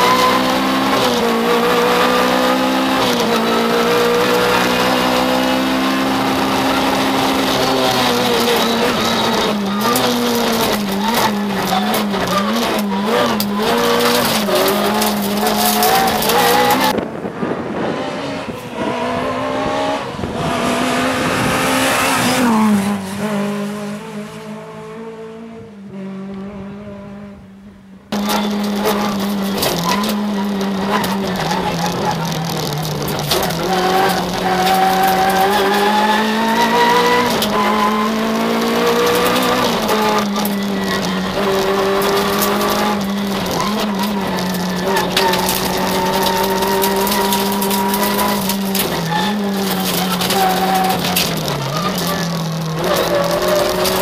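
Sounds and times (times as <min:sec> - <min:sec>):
gear upshift: 0:00.0 - 0:24.7, 0:28.1 - 0:54.0
rally car engine revving: 0:00.0 - 0:54.0
clicks and rattles: 0:07.3 - 0:16.9, 0:28.2 - 0:37.7, 0:38.3 - 0:54.0.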